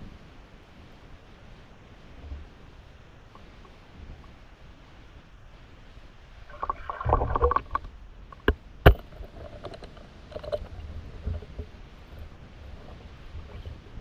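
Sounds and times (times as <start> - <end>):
low rumble of water: 0.0 - 14.0
underwater crackling: 6.5 - 11.8.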